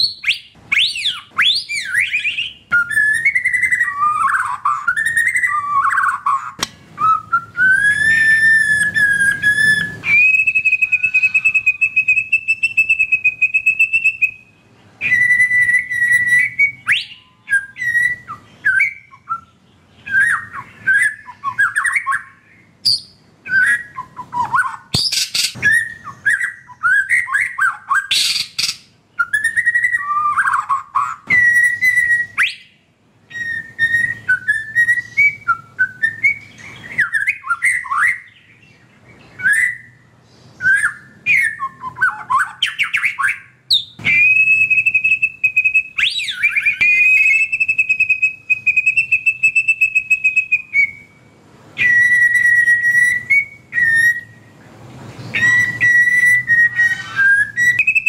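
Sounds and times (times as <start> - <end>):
bird singing whistled phrases: 0.0 - 54.5, 55.3 - 58.0
bird rapid high trills: 55.3 - 58.0.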